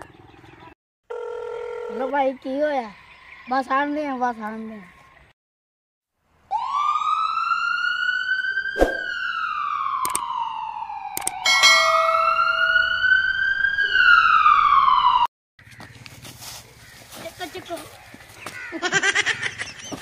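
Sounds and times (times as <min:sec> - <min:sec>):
wailing siren: 0:06.5 - 0:15.3
sharp clicks: 0:10.0 - 0:10.3, 0:11.2 - 0:11.4.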